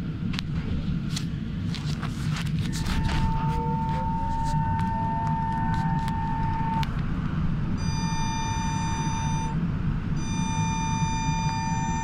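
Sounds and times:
road rumble: 0.0s - 12.0s
electric motor whine: 2.6s - 7.2s.

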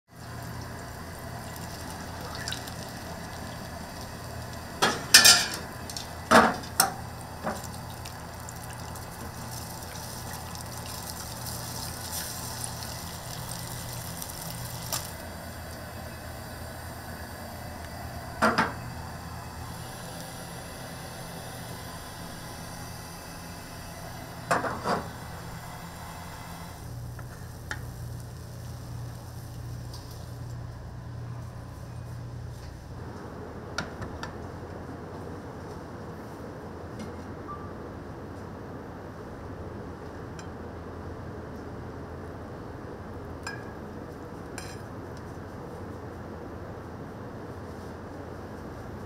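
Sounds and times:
kitchenware clattering: 4.8s - 5.7s.

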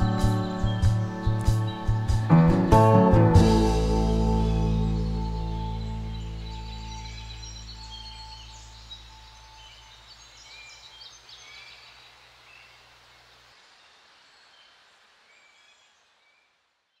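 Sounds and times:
background music: 0.0s - 9.0s
small birds chirping: 0.0s - 17.0s.

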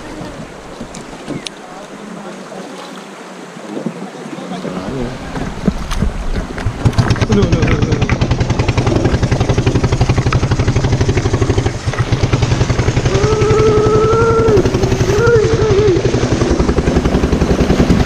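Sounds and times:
small engine running: 6.8s - 18.0s
person calling out: 13.1s - 16.2s.

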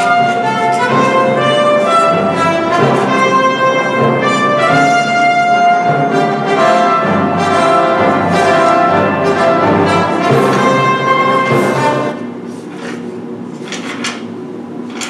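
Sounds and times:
orchestral music with brass: 0.0s - 12.2s.

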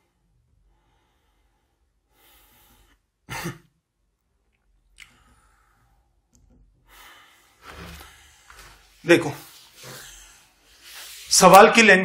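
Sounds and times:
man breathing: 0.0s - 3.2s, 5.0s - 11.3s
short cough: 3.3s - 3.7s.

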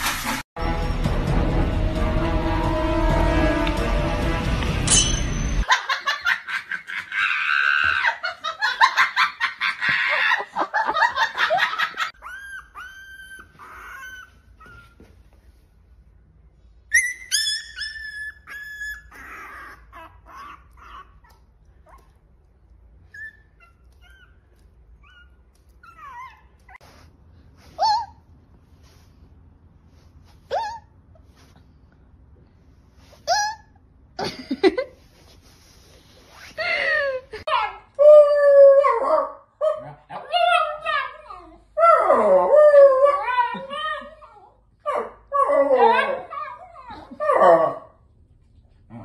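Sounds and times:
background music: 0.2s - 5.6s
puppy whining: 12.1s - 15.3s, 16.9s - 22.2s, 23.0s - 28.3s.

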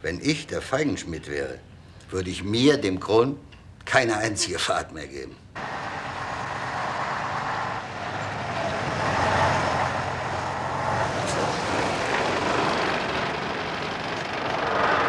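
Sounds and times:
lorry diesel engine passing: 5.6s - 15.0s.

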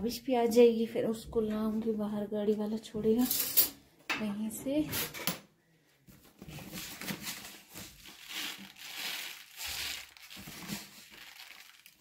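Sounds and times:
plastic packet crinkling: 6.7s - 12.0s.

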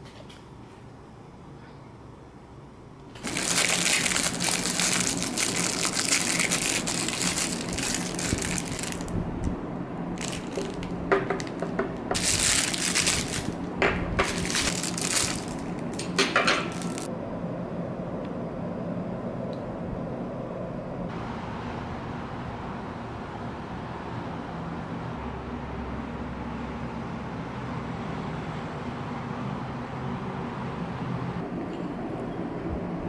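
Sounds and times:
plastic packaging crinkling: 3.2s - 9.2s, 10.1s - 17.1s.

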